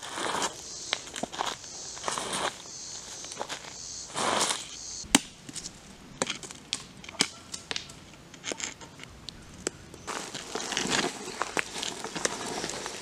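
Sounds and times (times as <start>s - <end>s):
footsteps crunching dry leaves: 0.0s - 5.0s, 10.0s - 13.0s.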